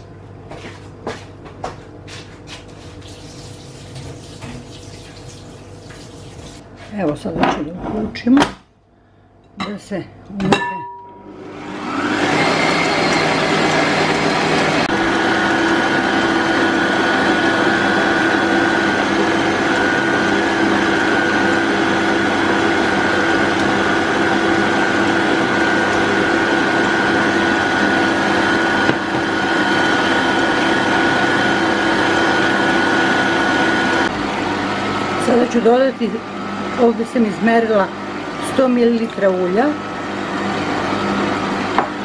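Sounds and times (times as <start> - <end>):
stand mixer whisking: 11.5 - 35.3.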